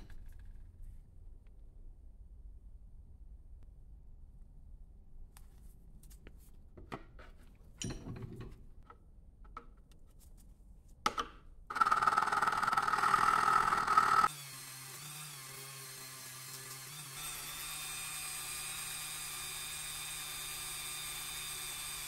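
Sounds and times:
rotary tool humming: 11.7 - 15.0.

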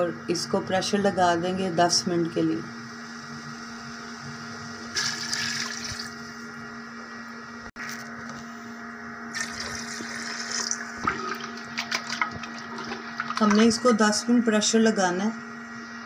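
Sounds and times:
water splashing in a pot: 5.0 - 6.2, 9.3 - 13.7.

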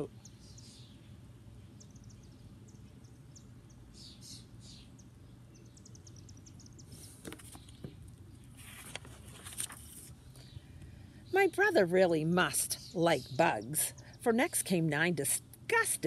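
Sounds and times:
faint bird chirps: 0.0 - 7.8
steady low hum: 0.0 - 16.0
book pages turning: 7.0 - 10.2.

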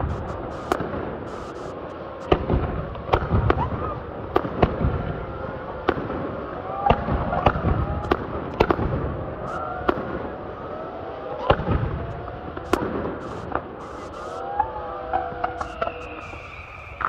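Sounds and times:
firework shells bursting: 0.0 - 3.6, 11.6 - 14.4, 15.4 - 17.0
continuous rumble: 0.0 - 17.0.

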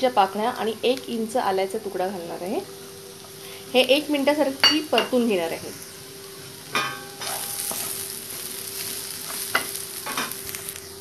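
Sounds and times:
food sizzling in hot oil: 0.0 - 11.0
scraping in frying pan: 6.8 - 10.8.

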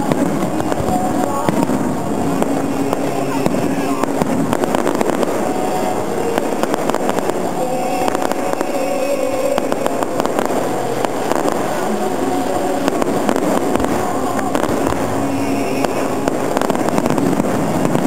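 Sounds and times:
fireworks crackling: 0.0 - 18.0.

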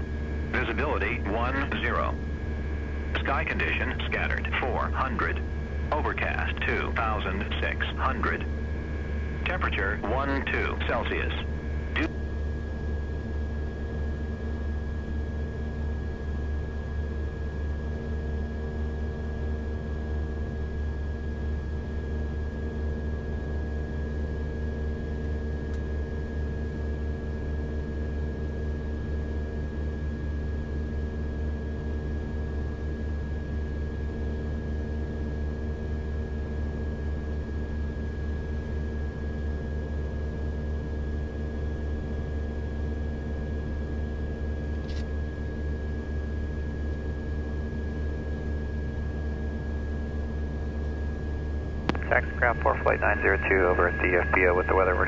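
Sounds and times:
high engine whine: 0.0 - 12.6, 51.8 - 55.0
turboprop engines idling: 0.1 - 12.1, 51.9 - 55.0.

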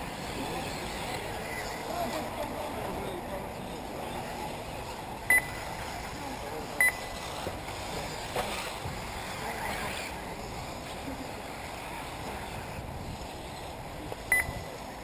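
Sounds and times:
high electronic beeps: 5.3 - 5.8, 6.8 - 7.2, 14.3 - 14.7.

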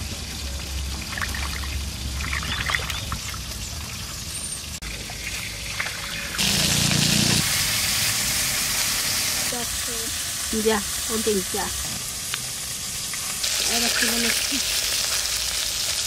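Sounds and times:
water splashing and trickling: 0.0 - 6.8, 13.0 - 15.0
fish frying in hot oil: 0.0 - 16.0.

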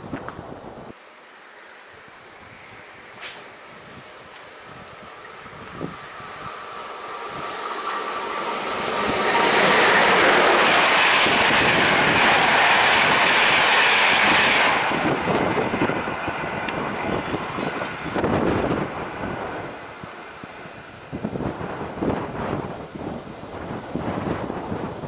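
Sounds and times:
train wheels rushing on rails: 2.4 - 25.0.

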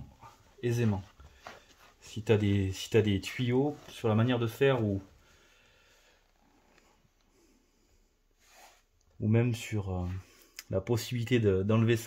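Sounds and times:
faint breath: 5.2 - 8.9.

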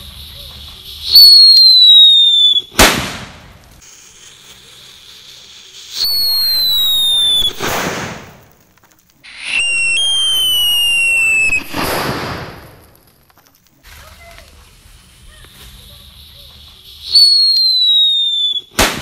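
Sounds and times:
firework burst: 0.0 - 8.6, 9.2 - 13.0, 17.0 - 19.0
firework whistle falling in pitch: 5.9 - 7.6, 9.3 - 11.8.

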